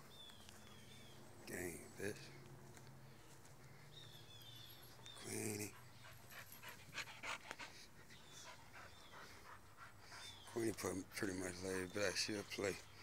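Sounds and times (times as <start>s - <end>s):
dog panting: 4.8s - 11.7s.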